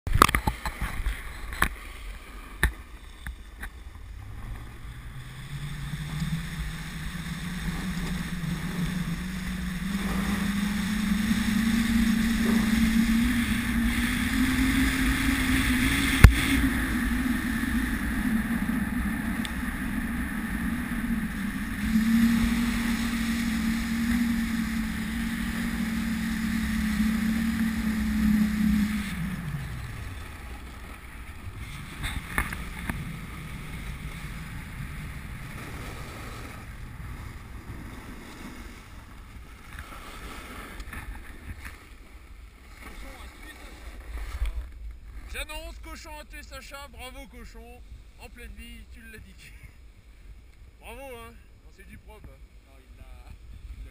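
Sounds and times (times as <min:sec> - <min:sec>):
snowboard sliding on snow: 0:00.6 - 0:49.6
wind on microphone: 0:03.6 - 0:41.9.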